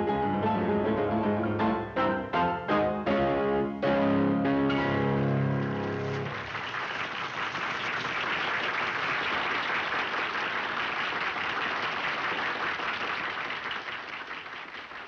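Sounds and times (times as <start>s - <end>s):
audience applause: 5.5s - 15.0s.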